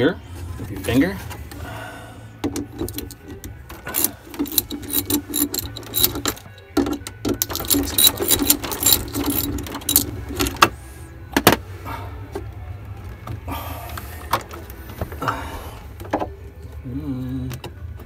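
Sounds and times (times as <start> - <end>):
socket ratchet clicking: 2.8 - 3.2, 4.0 - 10.7
metal clinks: 3.9 - 6.7, 7.4 - 10.5.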